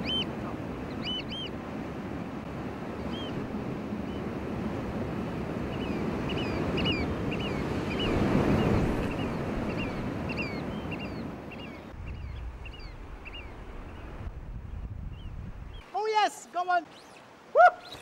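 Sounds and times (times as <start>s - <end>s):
wind on microphone: 2.4s - 15.8s
short chirping bird calls: 16.8s - 18.0s.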